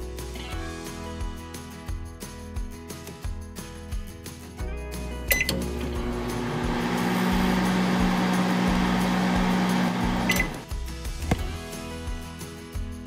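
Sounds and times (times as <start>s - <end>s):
electric oven humming with fan: 5.5s - 10.6s.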